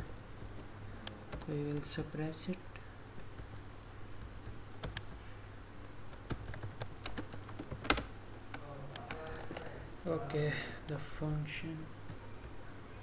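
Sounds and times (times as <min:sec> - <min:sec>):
keyboard typing: 0:01.3 - 0:02.0, 0:04.2 - 0:05.2, 0:06.1 - 0:09.7.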